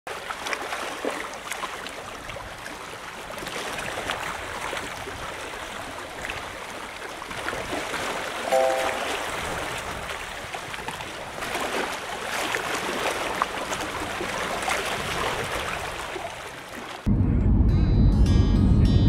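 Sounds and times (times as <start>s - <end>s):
small waves splashing against a wall: 0.1s - 8.5s, 9.1s - 17.1s
short tone: 8.5s - 9.2s.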